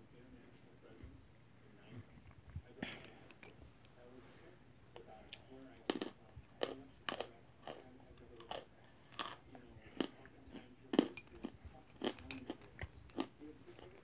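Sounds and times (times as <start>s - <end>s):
person chewing crunchy chalk: 5.9s - 14.0s.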